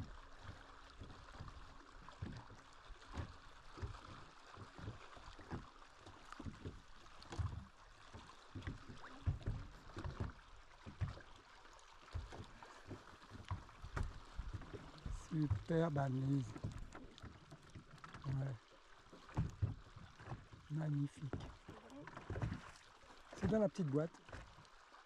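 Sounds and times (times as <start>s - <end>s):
wind: 0.0s - 25.0s
water washing: 12.1s - 24.4s.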